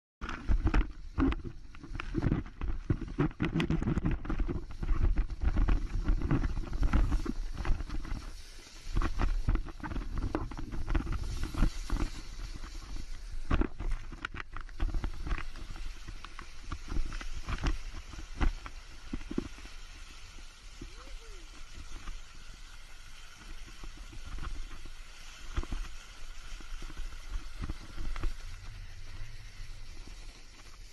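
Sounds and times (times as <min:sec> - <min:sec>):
water rushing and spraying: 0:14.8 - 0:30.9.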